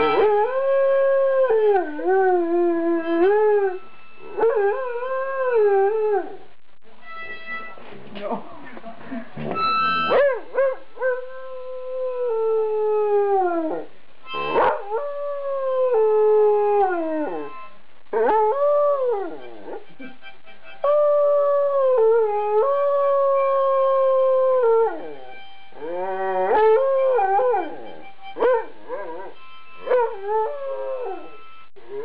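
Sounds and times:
harmonica notes: 0.0s - 0.8s, 1.7s - 5.4s, 7.0s - 7.9s, 9.4s - 10.4s, 14.2s - 14.9s, 17.0s - 17.9s, 18.6s - 21.4s, 25.0s - 31.8s
dog howling: 20.9s - 32.0s.

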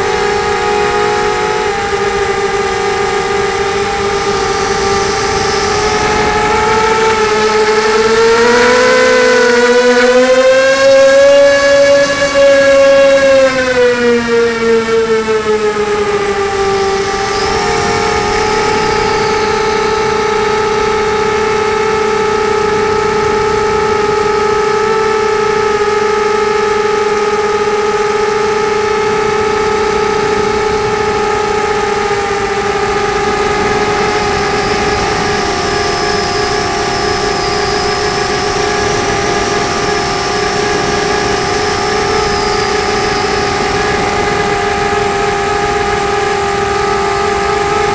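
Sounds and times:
quadcopter motors whining: 0.0s - 47.9s.

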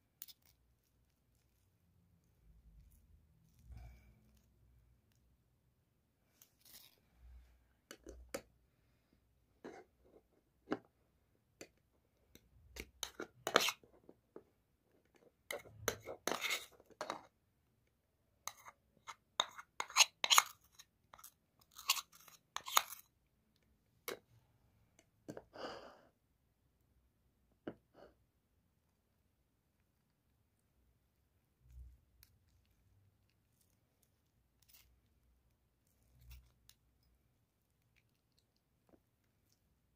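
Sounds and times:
spoon scraping metal strainer: 13.0s - 13.8s.

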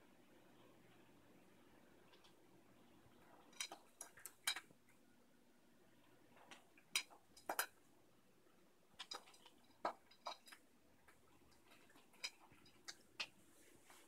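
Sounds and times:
cats crunching dry kibble: 9.0s - 14.0s.

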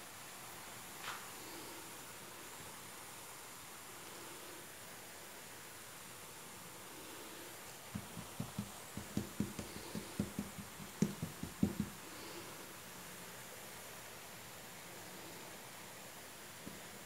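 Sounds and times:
faint steady hiss: 0.0s - 17.0s
hands patting dough: 7.9s - 12.0s.

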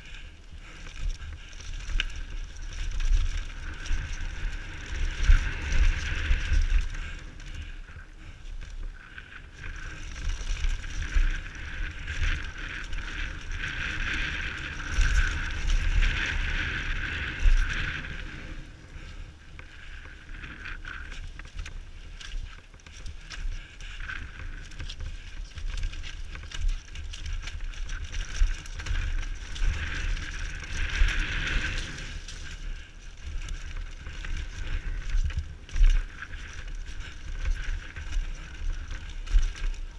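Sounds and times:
bike rattling over dirt trail: 0.0s - 39.9s
wind buffeting microphone: 0.0s - 39.9s.

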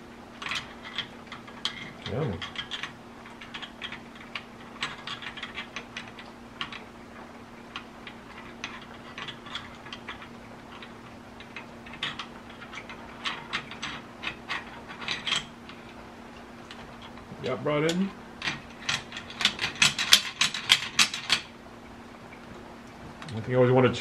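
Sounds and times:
steady low hum: 0.0s - 24.0s
metal parts clicking and scraping: 0.4s - 6.9s, 7.7s - 16.0s, 17.9s - 21.5s.

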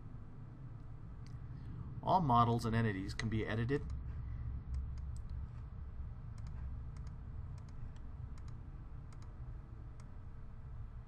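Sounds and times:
steady low rumble: 0.0s - 11.0s
computer mouse clicks: 4.7s - 5.4s, 6.3s - 10.2s.

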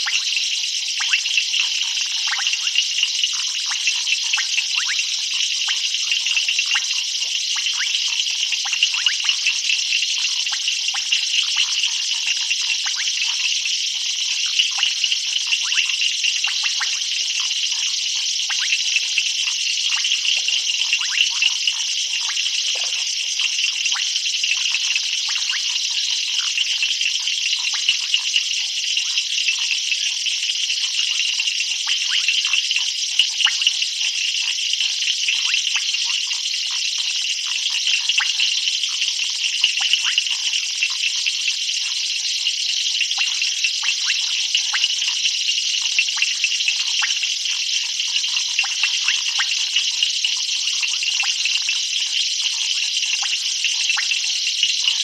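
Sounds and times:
frogs calling: 0.0s - 13.7s, 14.3s - 28.3s
insects trilling: 0.0s - 26.8s.

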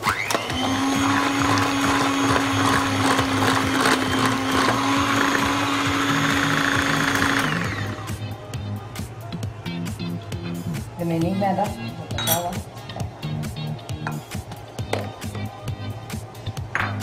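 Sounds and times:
electric hand mixer whirring: 0.0s - 8.2s.

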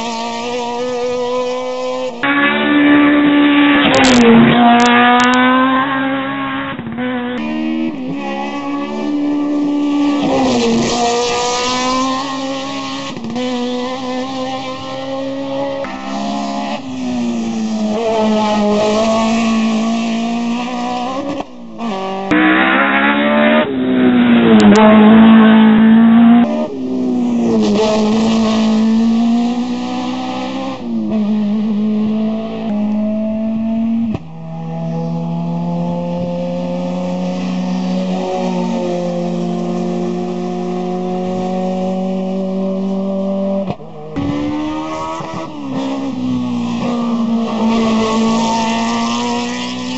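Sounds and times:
race car engines revving: 0.0s - 49.9s.

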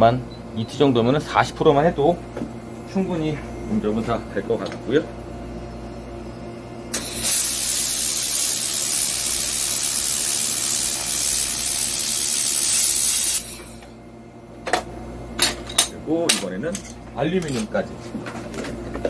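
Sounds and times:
steady low hum: 0.0s - 19.0s
welder click: 6.9s - 8.0s
laser welder hissing: 6.9s - 14.0s.

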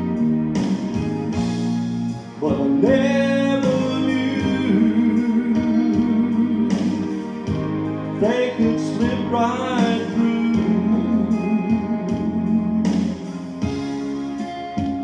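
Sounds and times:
instrumental accompaniment: 0.0s - 15.0s
man singing into a microphone: 2.4s - 7.3s, 8.2s - 13.2s.

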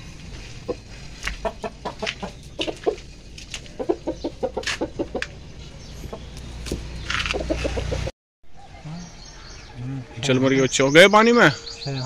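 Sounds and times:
rooster clucking: 0.4s - 6.4s, 7.2s - 8.1s.

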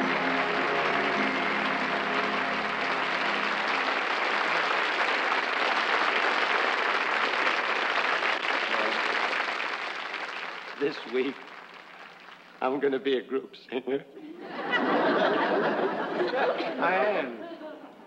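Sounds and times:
music with sustained notes: 0.0s - 4.0s
studio audience applauding: 0.0s - 12.8s.

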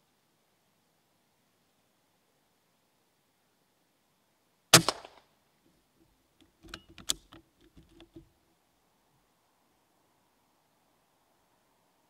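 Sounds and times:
air rifle shot: 4.7s - 5.2s
light clicks and knocks: 6.4s - 8.3s.

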